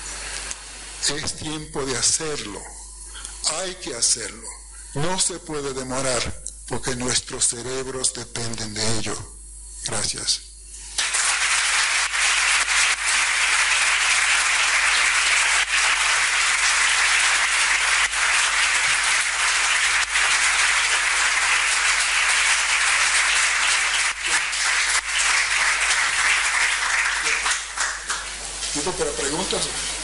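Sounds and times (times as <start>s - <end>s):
audience applauding: 11.0s - 28.9s.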